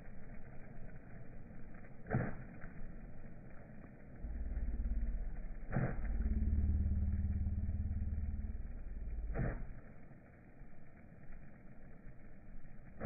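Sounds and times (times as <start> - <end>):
low engine drone: 0.0 - 13.0
sprinkler water jet rushing: 0.0 - 13.0
sprinkler arm knock: 5.6 - 6.5, 9.2 - 9.8.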